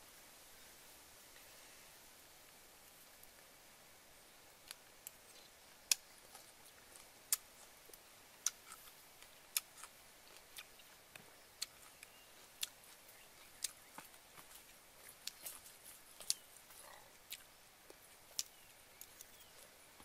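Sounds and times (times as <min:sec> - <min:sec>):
mouth clicks from chewing: 0:08.4 - 0:19.7.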